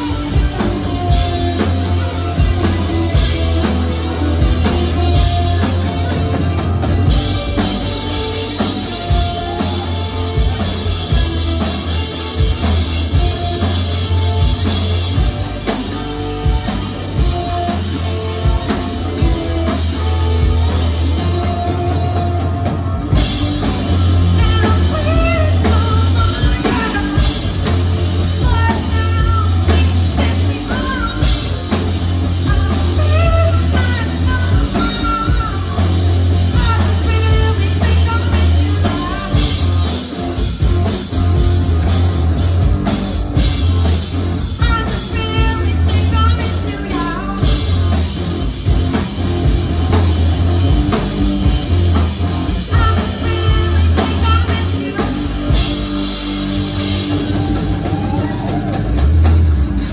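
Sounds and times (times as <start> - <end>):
bass guitar: 0.0 - 59.9
drum kit: 0.0 - 59.9
electric guitars: 0.0 - 59.9
woman singing: 24.2 - 40.0, 44.6 - 47.9, 52.6 - 55.9.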